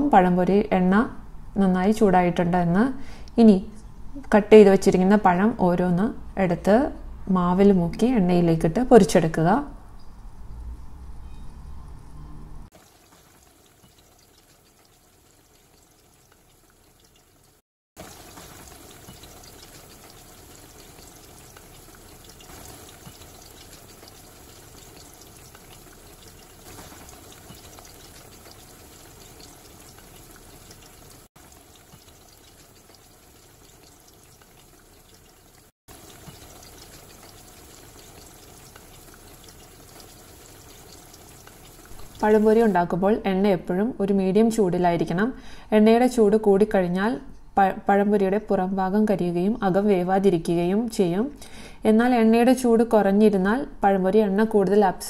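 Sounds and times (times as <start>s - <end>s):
plantain slices sizzling in oil: 12.8s - 42.9s.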